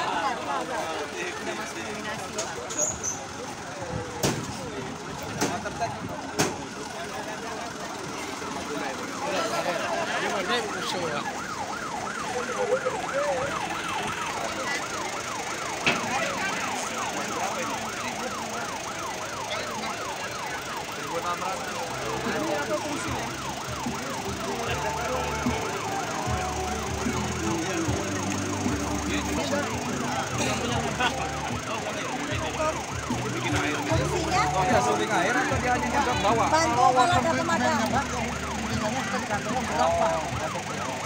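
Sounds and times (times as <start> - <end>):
lower steady siren tones: 3.2 - 41.0
siren fast yelp: 8.7 - 41.0.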